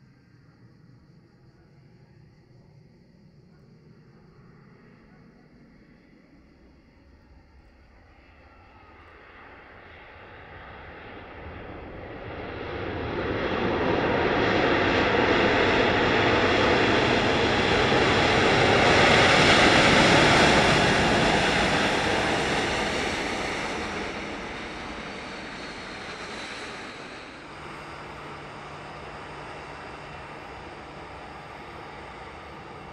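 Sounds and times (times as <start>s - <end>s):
airliner flying overhead: 0.0s - 32.9s
engine whine dropping in pitch: 20.7s - 32.9s.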